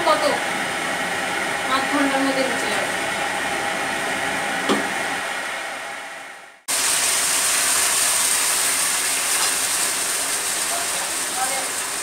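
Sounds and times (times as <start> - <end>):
single knock: 4.7 - 4.9
fish frying in hot oil: 6.7 - 12.0.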